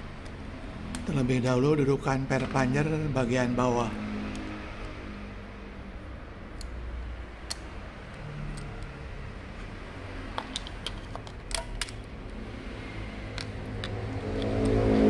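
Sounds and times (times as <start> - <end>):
tools clicking and tapping: 7.4 - 9.0, 10.3 - 12.1, 13.3 - 14.8
low hum: 12.0 - 15.0.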